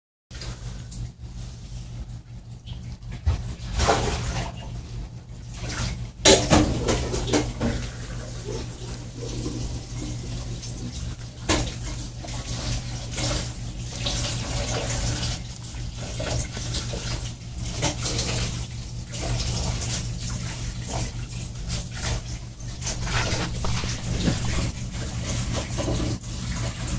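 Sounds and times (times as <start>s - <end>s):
steady low hum: 0.4s - 26.9s
dog chewing and licking: 22.7s - 25.2s.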